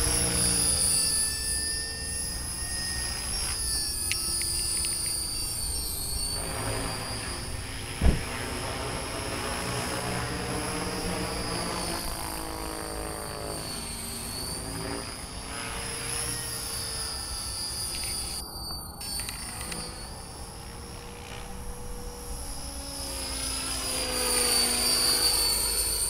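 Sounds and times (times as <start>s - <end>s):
model helicopter whine: 0.0s - 26.0s
loud thump: 8.0s - 8.4s.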